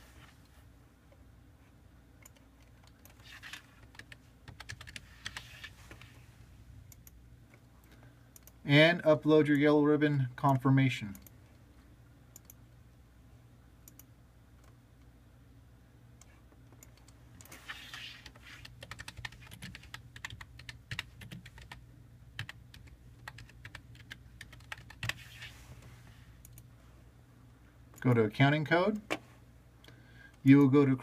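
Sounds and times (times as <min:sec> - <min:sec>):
low steady hum: 0:00.0 - 0:31.0
computer keyboard typing: 0:02.2 - 0:05.7, 0:16.2 - 0:25.5.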